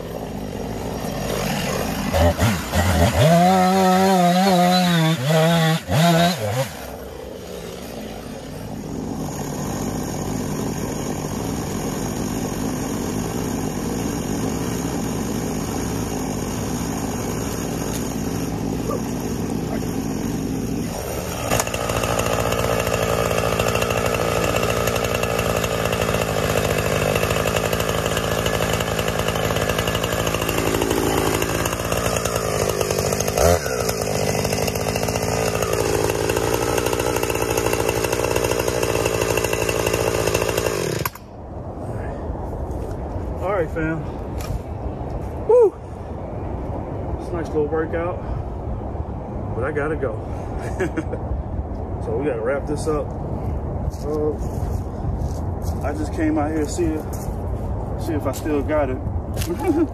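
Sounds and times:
chainsaw cutting log: 0:00.0 - 0:41.4, 0:58.1 - 0:59.9
chainsaw idling and revving: 0:00.0 - 0:41.4, 0:55.7 - 0:57.3, 0:58.0 - 0:59.9.

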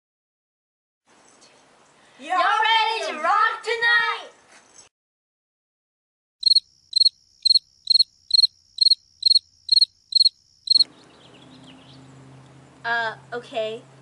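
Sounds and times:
cricket chirping: 0:06.4 - 0:10.9.

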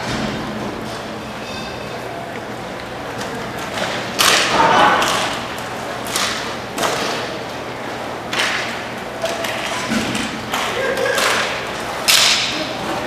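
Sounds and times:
hockey sticks knocking puck: 0:03.1 - 0:07.4, 0:08.2 - 0:12.8.

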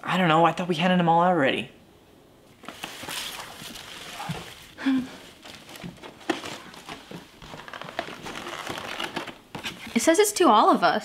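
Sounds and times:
wrapping paper rustling: 0:02.6 - 0:10.1.

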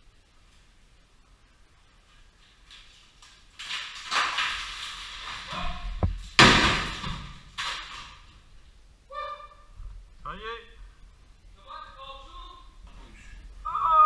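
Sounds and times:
stones scraping and clattering: 0:02.7 - 0:08.3
loud crash of falling rock: 0:03.6 - 0:08.4.

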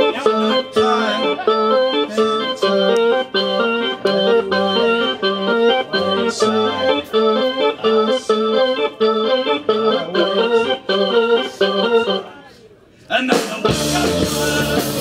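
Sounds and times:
organ chords: 0:00.0 - 0:12.4, 0:13.5 - 0:15.0
drum beats: 0:13.2 - 0:15.0
live rock band: 0:13.3 - 0:15.0.

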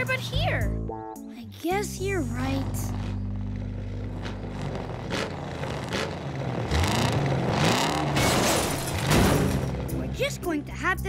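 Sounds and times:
cartoon truck engine revving: 0:01.9 - 0:10.5
scraping and clattering metal: 0:08.0 - 0:09.8.

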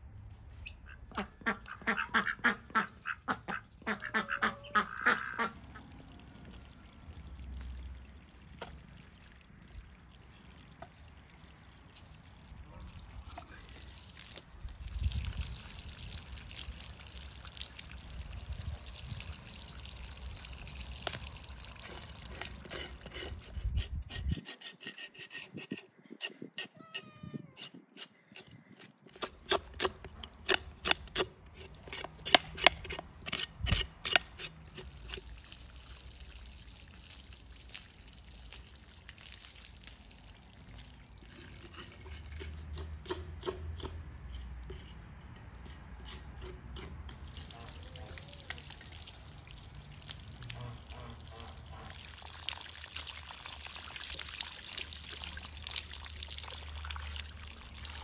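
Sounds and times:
hose water splashing: 0:01.9 - 0:25.7, 0:33.7 - 0:43.0, 0:46.8 - 0:58.0.

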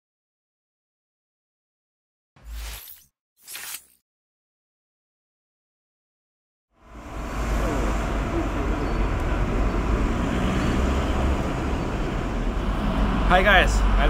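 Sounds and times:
low rumbling background din: 0:07.0 - 0:10.2.

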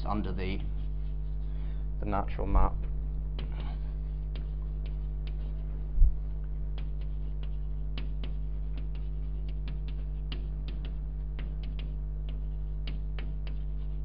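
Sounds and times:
electrical mains hum: 0:00.0 - 0:14.0
chalk tapping on blackboard: 0:00.3 - 0:01.4, 0:03.3 - 0:05.8, 0:06.6 - 0:14.0.

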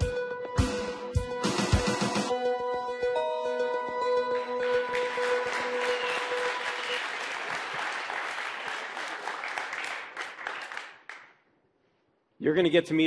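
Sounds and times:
audience applauding: 0:04.2 - 0:11.4.

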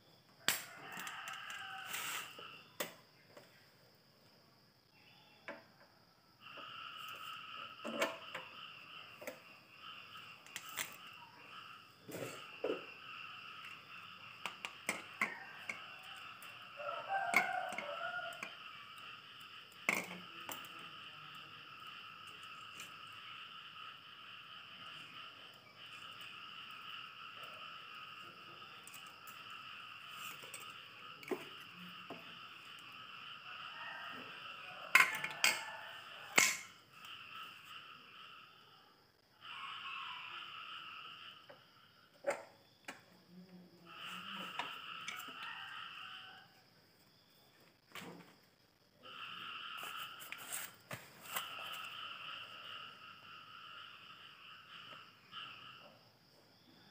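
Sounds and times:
welder fan humming: 0:12.3 - 0:37.2.

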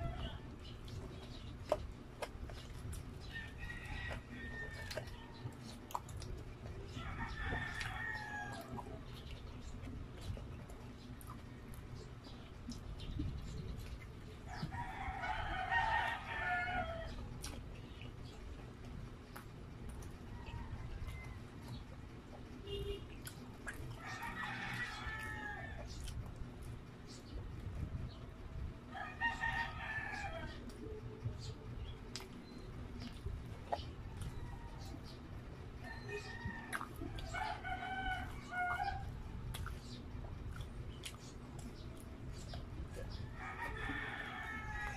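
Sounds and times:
chewing with wet mouth clicks: 0:00.1 - 0:28.2, 0:30.1 - 0:44.9
rooster crowing: 0:24.0 - 0:25.8, 0:43.3 - 0:44.9
eating clicks: 0:36.0 - 0:44.4.

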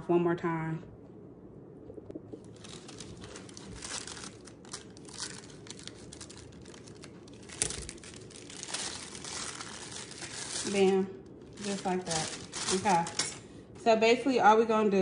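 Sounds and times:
plastic bag crinkling: 0:02.3 - 0:13.8
scissors cutting plastic: 0:11.6 - 0:13.4.

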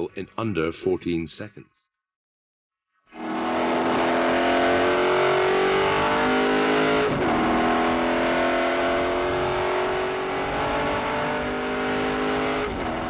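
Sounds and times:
car engine accelerating: 0:03.1 - 0:13.0.

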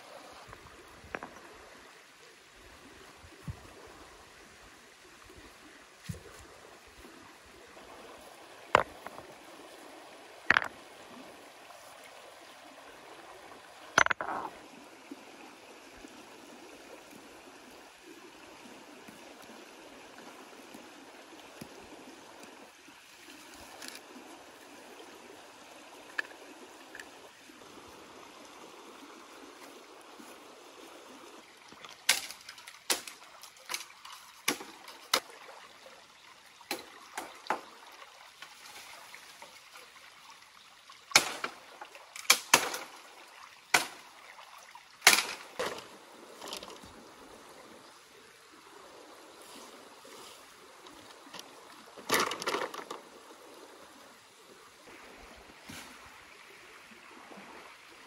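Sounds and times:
stream water flowing: 0:00.0 - 0:58.0
stone-on-stone knocks: 0:08.8 - 0:09.2, 0:10.5 - 0:10.7, 0:14.0 - 0:14.5
machete chopping bamboo: 0:45.1 - 0:45.4.

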